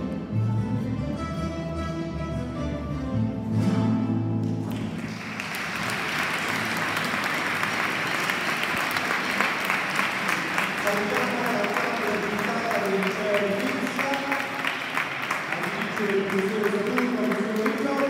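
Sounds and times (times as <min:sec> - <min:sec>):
guitar ensemble with double bass: 0:00.0 - 0:11.3
audience applause: 0:04.6 - 0:18.0.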